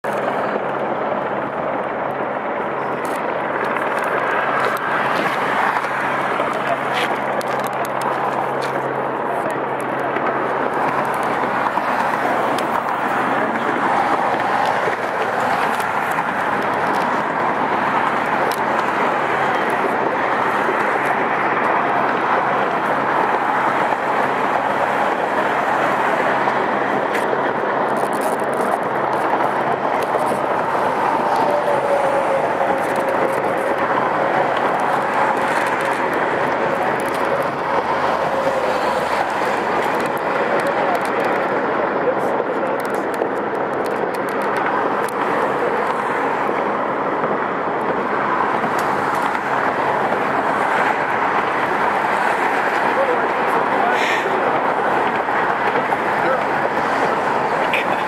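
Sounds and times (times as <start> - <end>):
road traffic roar: 0.0 - 58.0
tyre hiss of traffic: 44.7 - 58.0.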